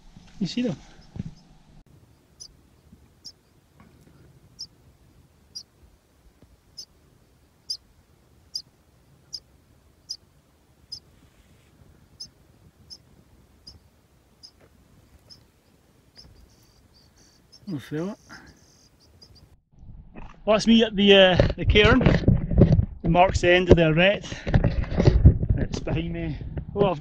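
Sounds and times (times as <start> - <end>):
birds chirping high: 7.6 - 7.9, 8.5 - 10.2, 10.9 - 19.6.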